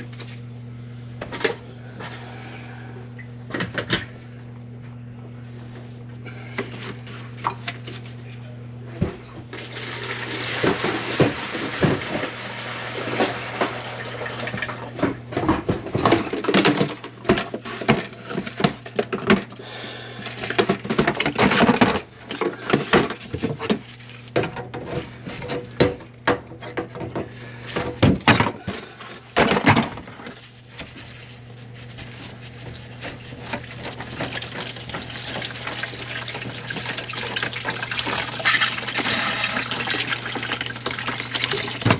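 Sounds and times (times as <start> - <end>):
steady low hum: 0.0 - 9.8, 13.0 - 41.9
metal clattering in a sink: 9.6 - 19.6, 20.2 - 41.9.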